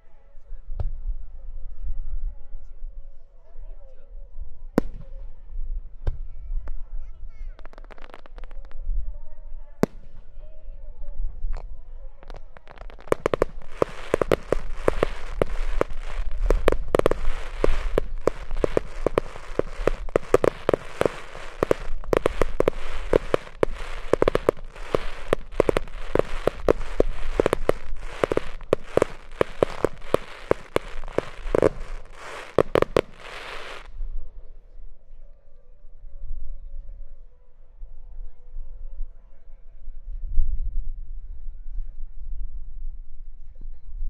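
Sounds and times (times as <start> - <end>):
fireworks crackling: 7.5 - 8.8, 11.6 - 34.0
fireworks bangs: 11.6 - 33.9.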